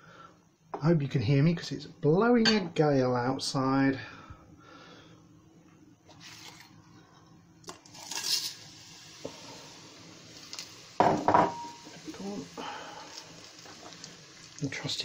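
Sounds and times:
spices sizzling in hot oil: 7.7 - 15.0.

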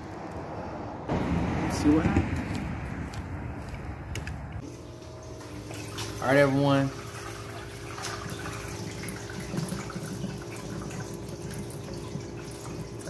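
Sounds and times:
water bubbling and dripping: 7.0 - 13.0.

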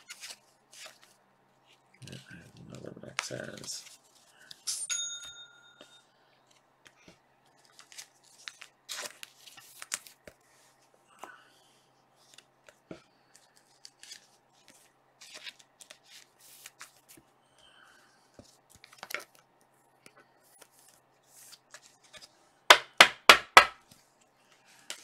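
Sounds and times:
cards sliding and rustling: 0.0 - 2.2, 6.5 - 10.9, 12.2 - 17.3, 18.2 - 22.4, 23.8 - 25.0
sharp knocks: 22.7 - 23.8.

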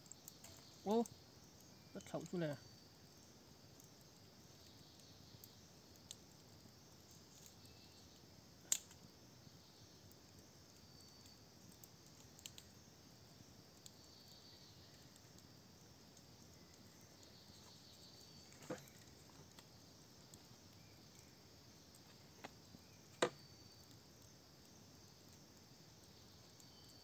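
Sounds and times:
faint insect chirping: 0.0 - 27.0.

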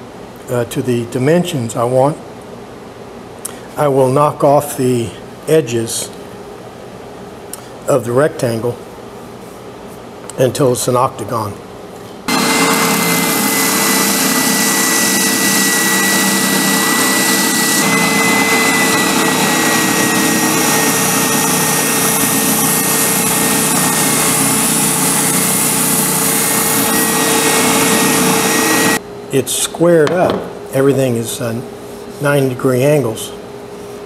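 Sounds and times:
spindle sander whine and hiss: 12.3 - 29.0.

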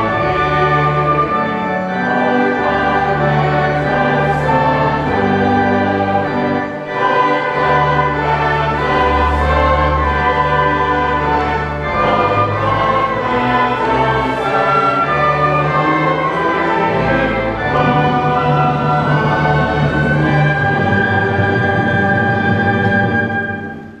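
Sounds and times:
girls' choir singing: 0.0 - 23.5
violins and strings: 0.0 - 24.0.

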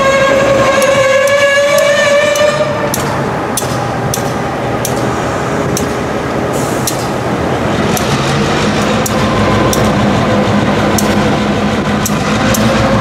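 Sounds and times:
diesel locomotive rumble: 0.0 - 13.0
sharp clicks: 0.8 - 6.1, 6.8 - 7.2, 7.9 - 10.0, 10.9 - 11.3, 12.0 - 12.7.

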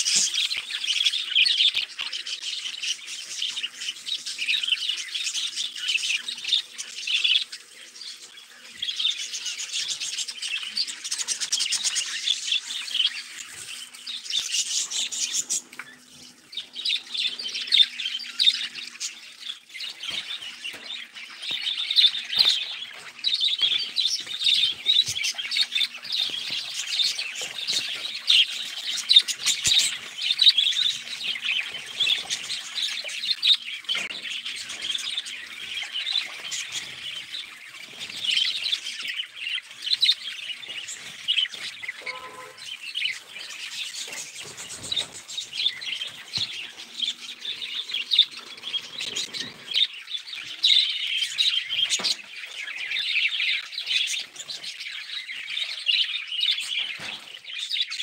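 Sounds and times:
budgerigars chattering: 16.3 - 57.9.

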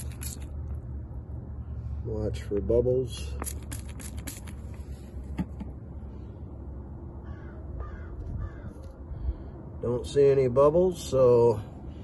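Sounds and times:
spray bottle spritzing: 0.0 - 0.5, 3.3 - 5.0
steady low rumble: 0.0 - 12.0
bird calling: 7.2 - 8.9.

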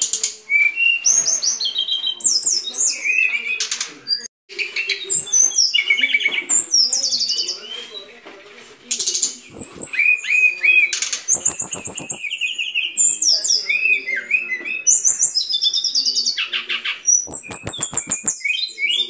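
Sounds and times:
bird song with trills: 0.0 - 8.2, 8.9 - 19.0
bird sharp clicks: 8.9 - 12.4.

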